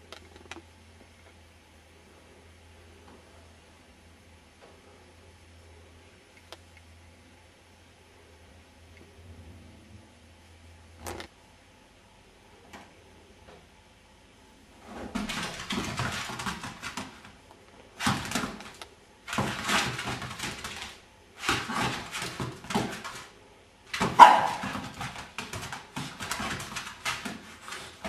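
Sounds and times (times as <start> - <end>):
puppy barking: 24.0 - 24.9.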